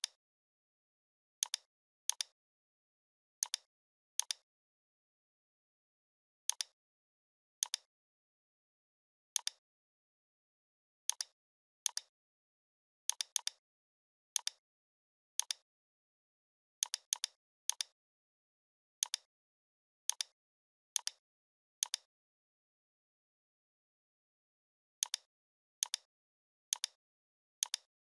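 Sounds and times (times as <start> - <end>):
computer mouse clicks: 1.4 - 2.4, 3.4 - 4.4, 6.5 - 6.8, 7.6 - 7.9, 9.4 - 9.6, 11.1 - 12.1, 13.1 - 13.6, 15.4 - 15.6, 16.8 - 18.0, 19.0 - 19.3, 20.1 - 20.4, 21.8 - 22.1, 25.0 - 26.1, 26.7 - 27.0, 27.6 - 27.9.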